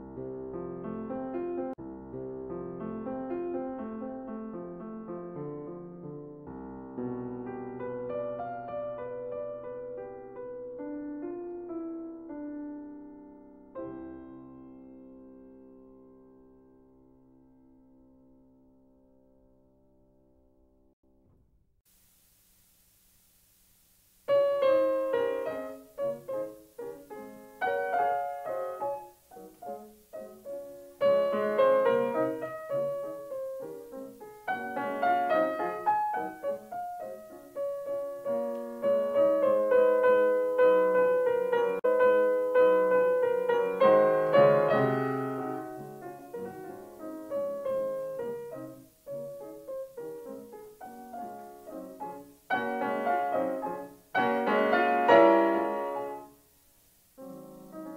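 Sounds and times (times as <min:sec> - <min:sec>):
solo piano piece: 0:00.0 - 0:22.0, 0:24.1 - 0:57.9.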